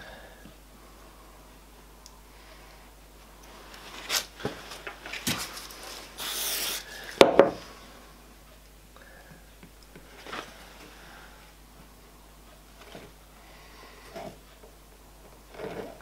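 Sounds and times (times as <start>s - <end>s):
aerosol spray hiss: 6.2s - 6.9s
can knocked down on wooden bench: 7.2s - 7.6s.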